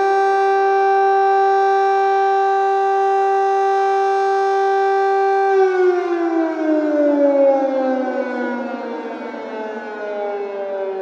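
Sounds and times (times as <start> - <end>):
air raid siren: 0.0 - 11.0.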